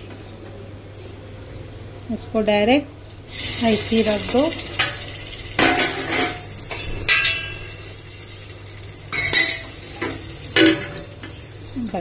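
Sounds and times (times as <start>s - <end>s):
metal cookware clinking on pot: 5.6s - 7.7s, 9.1s - 11.3s.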